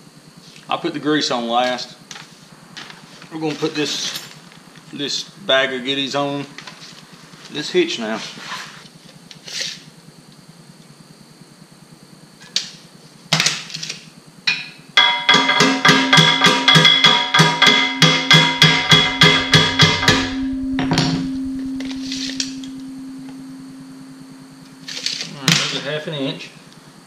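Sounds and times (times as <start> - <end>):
hammer striking metal: 14.5 - 25.3
lingering low metallic tone: 18.1 - 25.6.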